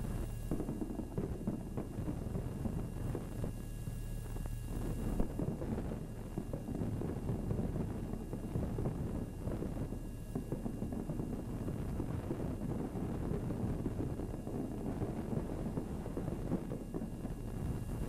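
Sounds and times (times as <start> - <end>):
firework pop: 0.0 - 3.6, 4.4 - 11.6
faint hum: 0.0 - 18.0
fireworks rumble and crackles: 0.0 - 18.0.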